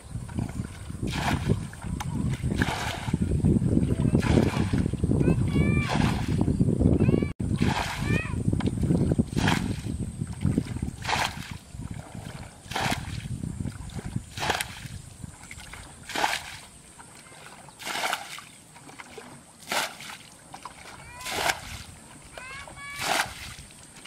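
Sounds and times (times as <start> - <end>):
splashes in shallow muddy water: 0.0 - 6.5, 7.4 - 24.0.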